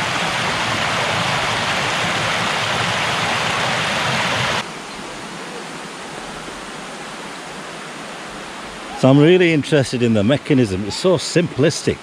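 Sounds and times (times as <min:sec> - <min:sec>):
water rushing over a weir: 0:00.0 - 0:12.0.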